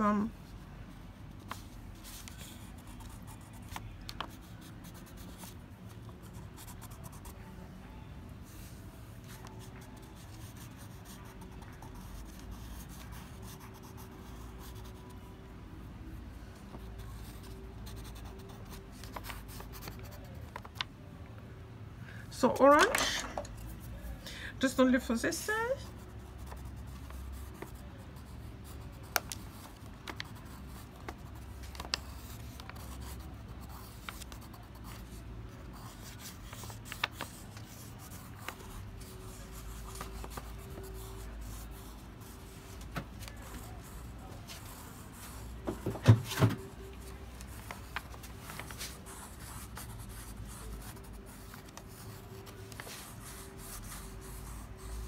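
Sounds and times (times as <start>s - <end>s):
crayon scratching on paper: 25.8s - 42.6s, 48.7s - 55.0s.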